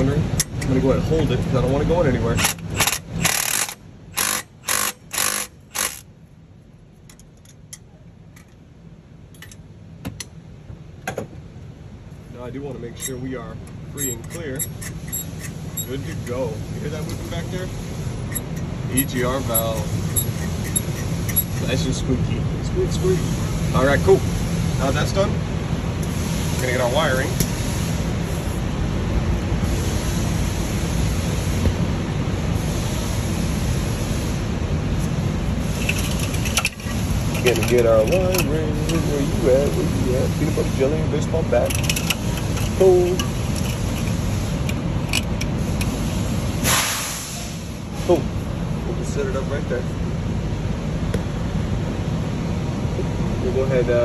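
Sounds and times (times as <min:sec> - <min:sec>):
hand ratchet strokes: 0:02.3 - 0:06.1, 0:13.9 - 0:17.4, 0:18.2 - 0:21.8, 0:35.6 - 0:40.9, 0:41.6 - 0:46.4.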